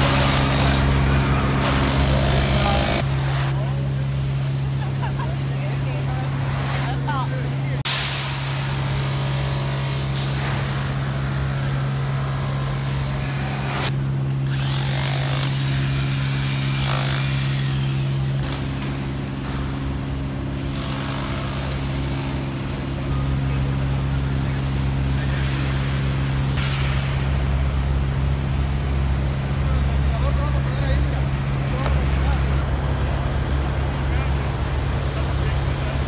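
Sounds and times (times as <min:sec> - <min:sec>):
demolition hammer chipping concrete: 0:00.0 - 0:03.5, 0:14.5 - 0:18.8, 0:20.7 - 0:22.5
low machinery hum: 0:00.0 - 0:36.0.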